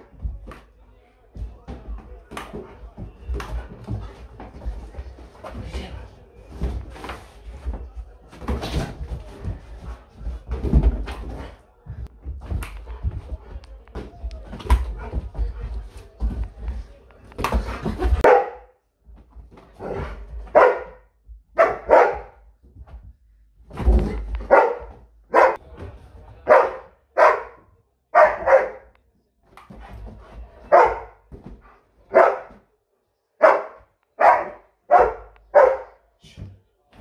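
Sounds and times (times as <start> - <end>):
dog barking: 18.2 - 18.8, 19.8 - 21.0, 21.6 - 22.4, 24.4 - 25.6, 26.5 - 27.6, 28.2 - 28.9, 30.7 - 31.2, 32.1 - 32.5, 33.4 - 36.0.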